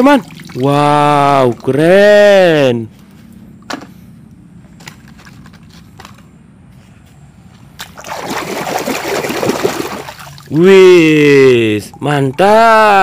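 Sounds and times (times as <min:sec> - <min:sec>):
hand splashing in water: 0:07.8 - 0:10.5.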